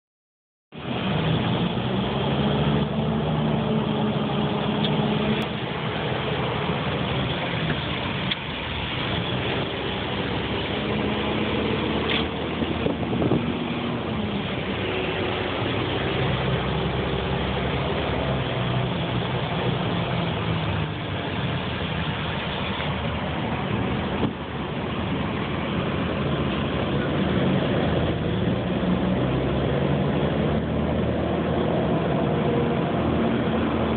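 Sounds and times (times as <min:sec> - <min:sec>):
truck engine droning: 0:00.7 - 0:33.9.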